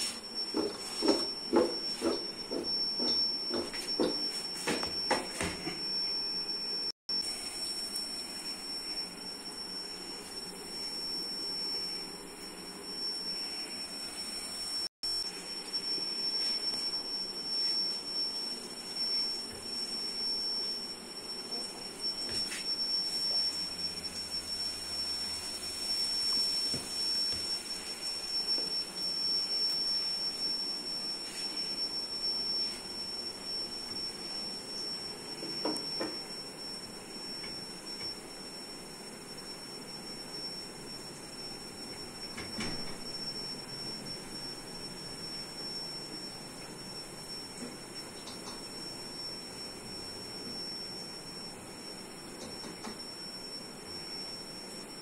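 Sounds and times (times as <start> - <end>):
steady high-pitched tone: 0.0 - 55.0
fries sizzling in hot oil: 7.1 - 11.4, 24.8 - 28.4.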